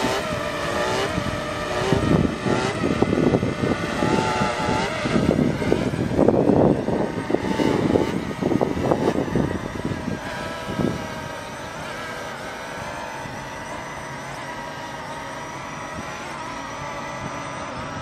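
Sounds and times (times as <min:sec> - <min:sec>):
drone propellers whining: 0:00.0 - 0:18.0
gusty low rumble: 0:01.0 - 0:13.5.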